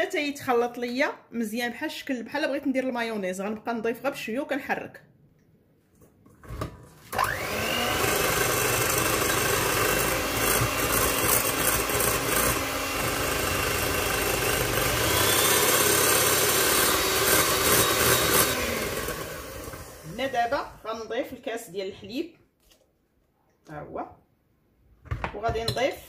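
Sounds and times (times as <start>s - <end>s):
electric hand mixer whisking batter: 7.1s - 20.8s.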